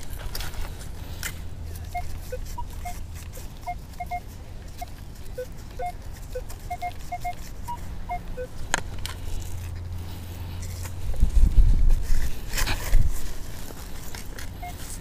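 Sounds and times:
metal detector beeps: 1.9s - 8.6s, 14.6s - 15.0s.

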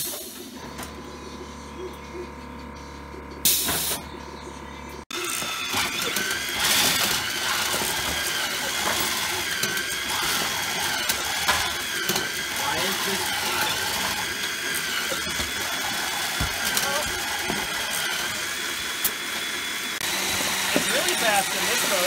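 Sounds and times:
conveyor motors whining: 0.0s - 22.0s
electrical hum: 0.1s - 22.0s
mechanical clatter: 5.1s - 20.0s.

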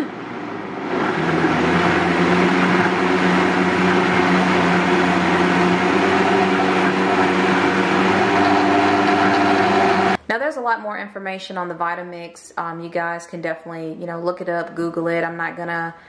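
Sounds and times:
blender running: 0.0s - 10.2s.

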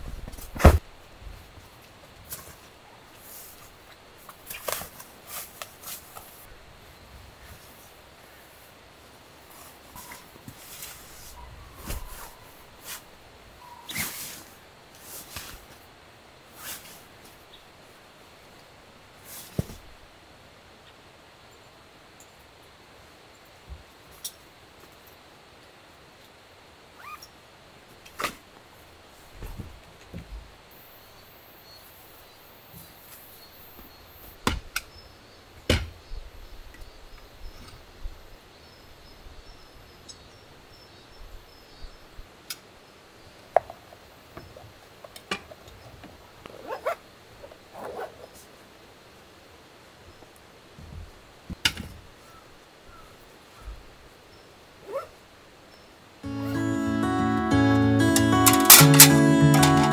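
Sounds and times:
heavy thump of camping mat: 0.0s - 0.8s
small clicks of camping gear: 1.8s - 6.5s, 24.1s - 26.4s, 42.4s - 42.7s.

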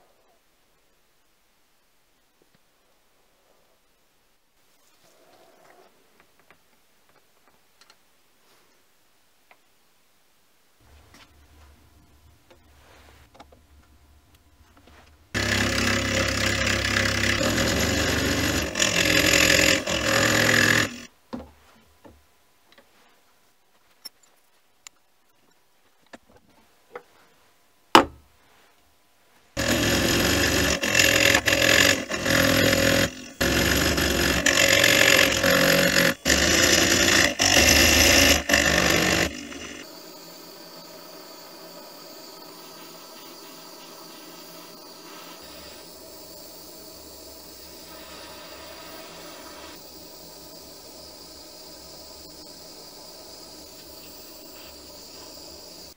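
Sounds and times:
milling machine cutting metal: 15.4s - 21.1s, 29.6s - 47.0s
butane torch hissing: 29.6s - 55.9s.

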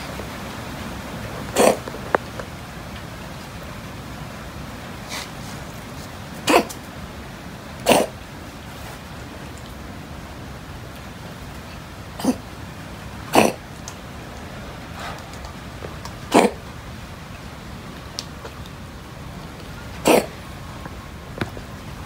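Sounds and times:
cats eating: 0.0s - 22.0s.

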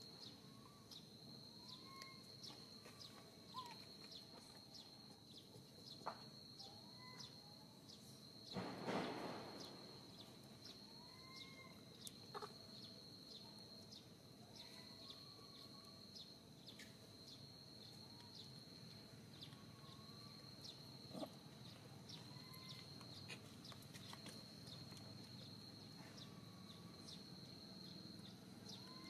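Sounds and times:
faint arching calls: 11.0s - 12.6s.

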